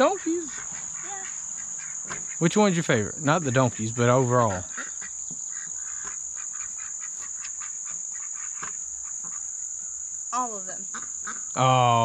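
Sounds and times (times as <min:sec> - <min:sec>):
insects chorus: 0:00.0 - 0:12.0.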